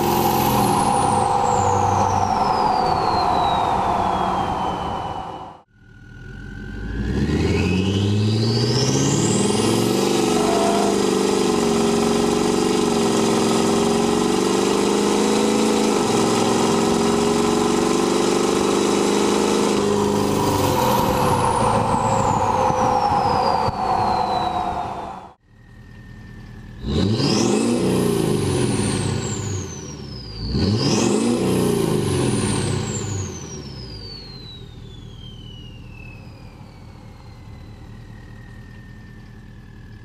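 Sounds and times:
high turbo whistle: 0:00.0 - 0:05.7, 0:09.4 - 0:11.7, 0:19.5 - 0:25.4
diesel engine accelerating: 0:00.0 - 0:40.0.

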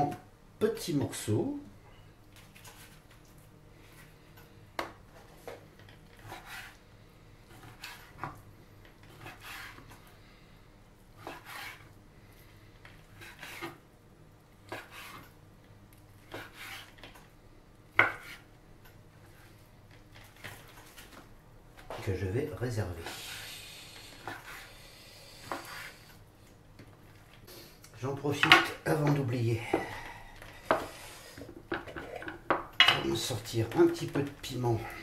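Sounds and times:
knife slicing on cutting board: 0:06.2 - 0:06.8, 0:09.1 - 0:09.9, 0:11.2 - 0:11.9, 0:13.2 - 0:13.8, 0:14.7 - 0:15.3, 0:16.3 - 0:17.0.

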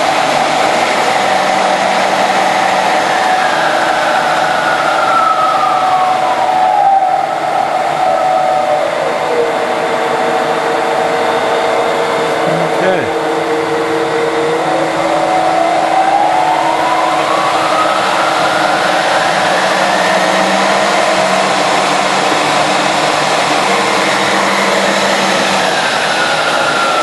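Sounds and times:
lathe belt drive whine: 0:00.0 - 0:27.0.

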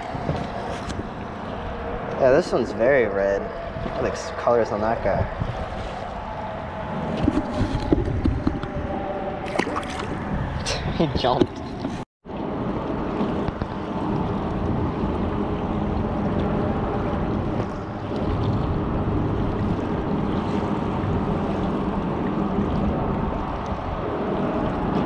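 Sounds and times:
water sloshing around boat: 0:00.0 - 0:25.0
wind rushing over microphone: 0:00.0 - 0:25.0.

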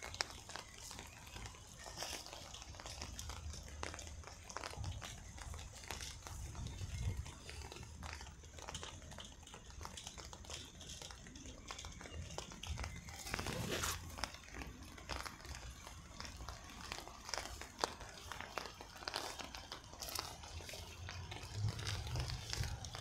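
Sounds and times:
footsteps through wet grass: 0:13.0 - 0:23.0.

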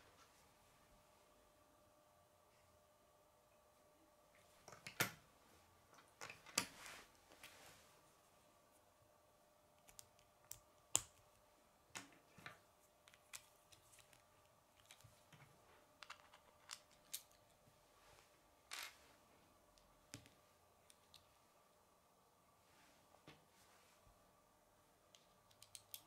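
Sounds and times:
plastic pieces clicking together: 0:25.5 - 0:26.0.

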